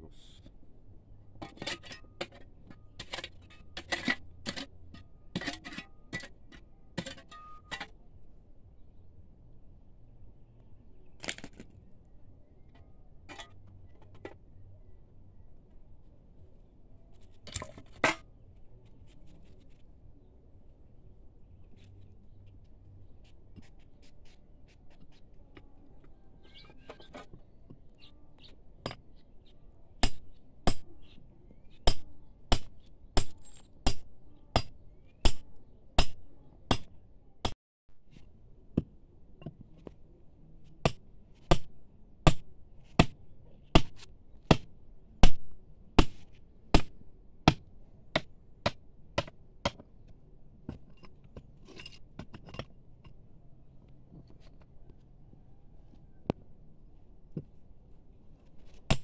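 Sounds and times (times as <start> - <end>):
hammer striking chisel on rock: 30.0 - 30.9, 31.8 - 37.6, 40.8 - 41.7, 42.3 - 43.2, 44.5 - 49.8.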